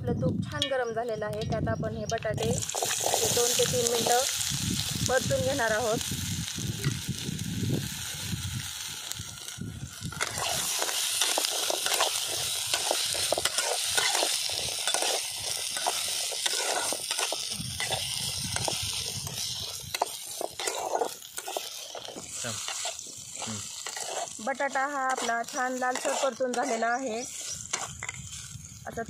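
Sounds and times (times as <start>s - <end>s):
potatoes sizzling in hot fat: 0.2s - 29.0s
metal spatula scraping a pan: 2.4s - 4.5s, 10.1s - 28.5s.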